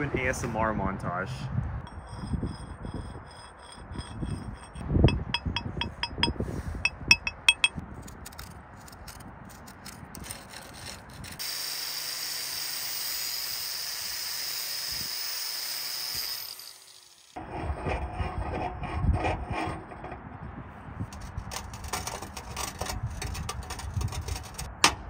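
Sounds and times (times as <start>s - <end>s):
angle grinder grinding metal: 1.9s - 6.3s, 10.2s - 17.4s
steel rod scraping steel bar: 1.9s - 11.4s, 21.1s - 24.7s.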